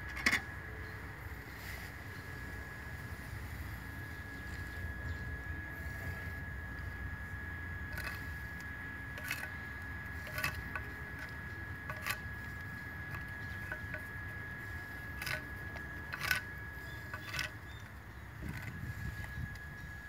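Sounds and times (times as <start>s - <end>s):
faint high whine: 0.0s - 20.0s
metal tool scraping stone tile: 9.2s - 9.6s, 10.2s - 11.3s, 11.9s - 12.2s, 13.1s - 14.1s, 15.1s - 17.6s.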